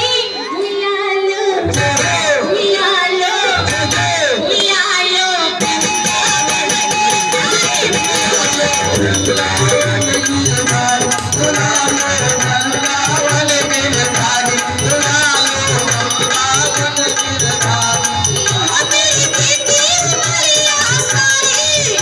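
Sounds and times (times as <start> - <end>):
woman singing into a microphone: 0.0 - 22.0
hand drum beating: 5.6 - 22.0
jingling rattle percussion: 5.6 - 22.0.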